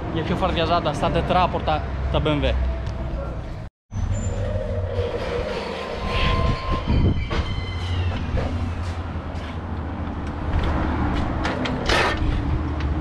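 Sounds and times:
short squeaks: 0:03.9 - 0:09.5.

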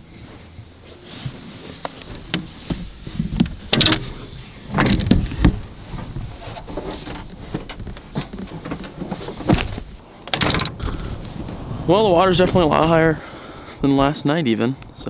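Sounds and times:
knocks and thumps in truck bed: 0:02.2 - 0:11.2.

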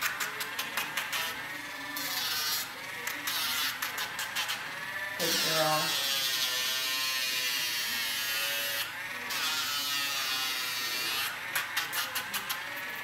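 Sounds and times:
rotary nail grinder whining: 0:01.1 - 0:12.8.

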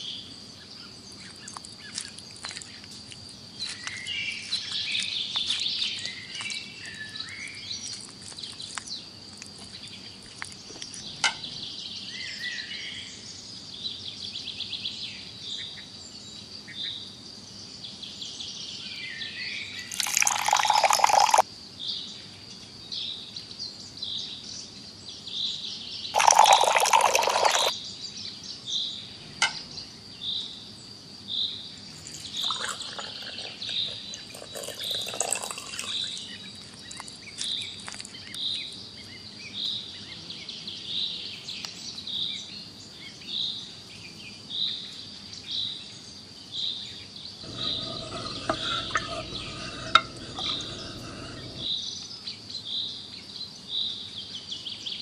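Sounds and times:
water pouring into pot: 0:19.9 - 0:21.4, 0:26.2 - 0:27.7, 0:32.0 - 0:36.3, 0:47.5 - 0:51.7.

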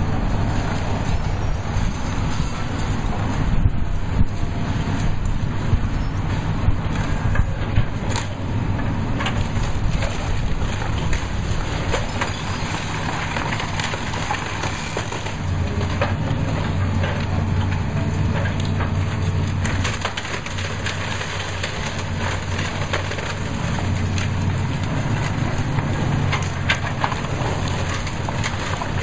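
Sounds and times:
excavator diesel engine running: 0:00.0 - 0:29.0
walls cracking and crunching: 0:00.0 - 0:29.0
falling rubble: 0:06.8 - 0:29.0.

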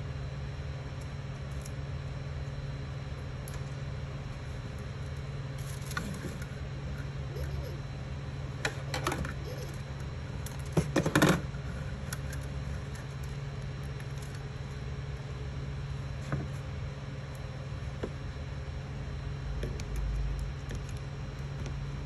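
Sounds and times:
printer humming: 0:00.0 - 0:22.0.

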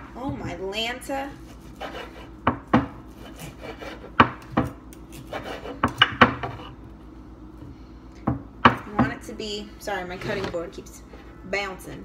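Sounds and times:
knife sawing through steak: 0:01.5 - 0:02.4, 0:03.1 - 0:04.2, 0:05.1 - 0:05.8
cutting board knocking on counter: 0:02.5 - 0:03.0.

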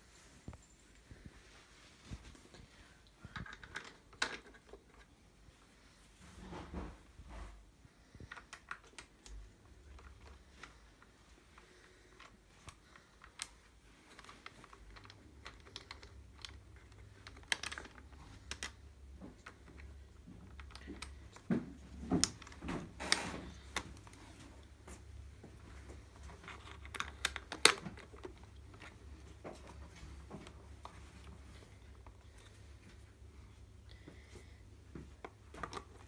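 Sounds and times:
faint low hum: 0:00.0 - 0:36.0.

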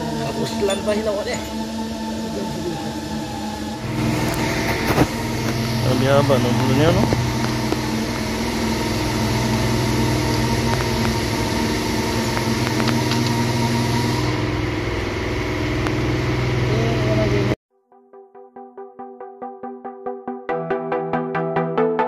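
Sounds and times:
engine idling: 0:00.0 - 0:17.6.

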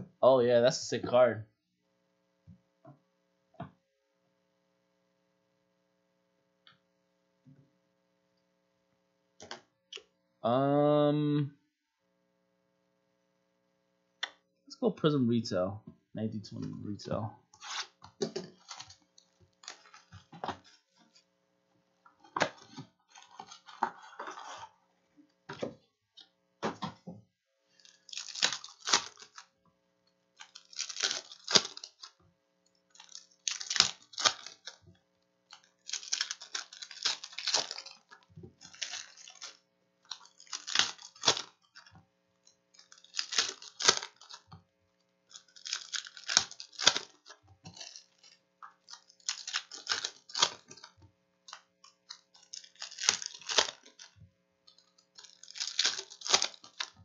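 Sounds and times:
foil wrappers crinkling and tearing: 0:17.6 - 0:21.2, 0:22.2 - 0:24.5, 0:27.7 - 0:29.5, 0:30.3 - 0:32.2, 0:32.9 - 0:34.9, 0:35.5 - 0:41.9, 0:42.7 - 0:44.6, 0:45.2 - 0:57.0.

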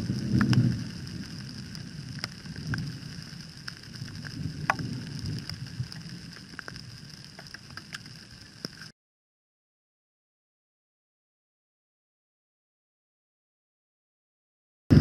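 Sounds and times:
raindrops ticking: 0:00.0 - 0:08.9.

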